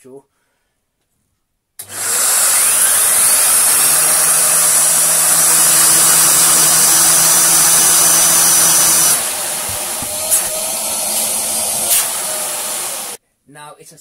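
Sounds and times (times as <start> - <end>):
vacuum cleaner running: 1.8 - 13.2.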